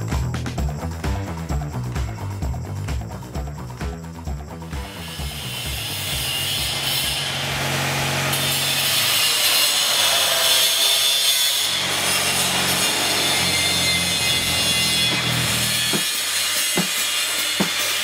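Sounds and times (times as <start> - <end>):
angle grinder cutting metal: 4.7 - 18.0.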